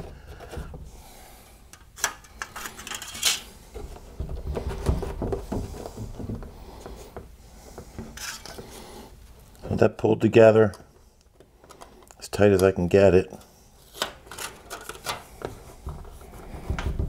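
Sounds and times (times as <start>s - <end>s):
plastic handling clicks and knocks: 0.0s - 0.9s, 1.7s - 8.8s, 14.0s - 17.0s
tape crackling: 1.7s - 7.0s, 13.4s - 16.8s.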